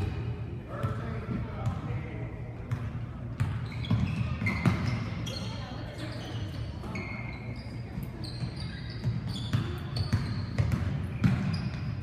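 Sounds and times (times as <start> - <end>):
basketball bouncing on wood floor: 2.7 - 5.2, 8.4 - 12.0
sneaker squeaks: 2.7 - 12.0.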